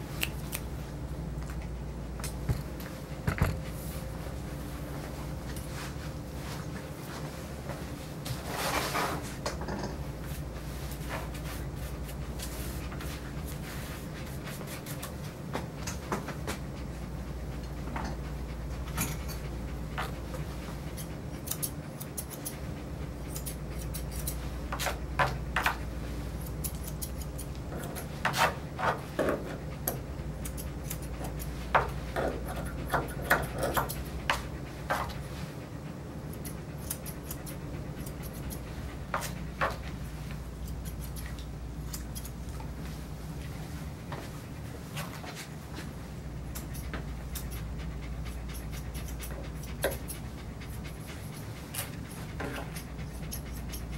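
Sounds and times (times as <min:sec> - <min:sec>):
grooming shears snipping: 0:00.0 - 0:00.8, 0:09.4 - 0:16.8, 0:17.6 - 0:35.5, 0:36.3 - 0:53.9
steady low hum: 0:00.0 - 0:53.9
brushing fur: 0:03.7 - 0:09.4, 0:10.0 - 0:15.7, 0:33.6 - 0:35.6, 0:36.3 - 0:53.9.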